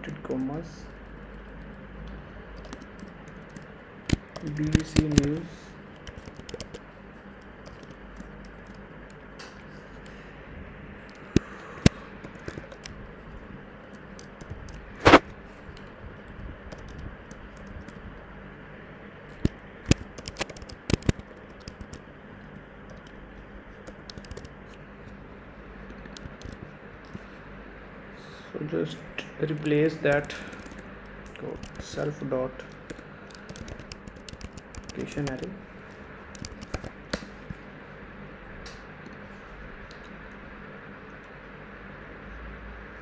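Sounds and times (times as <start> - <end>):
computer keyboard keystrokes: 2.6 - 5.4, 6.0 - 6.8, 7.4 - 10.2, 11.1 - 13.0, 13.8 - 18.0, 19.4 - 22.0, 22.9 - 23.2, 23.8 - 24.8, 26.0 - 27.2, 29.5 - 35.5, 36.3 - 37.2.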